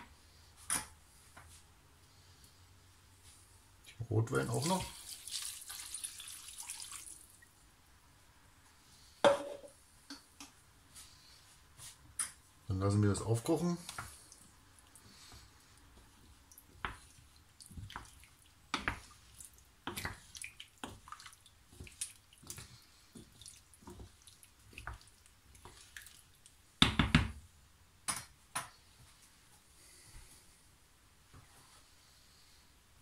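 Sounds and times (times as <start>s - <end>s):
wooden spoon stirring stew: 13.2s - 26.7s.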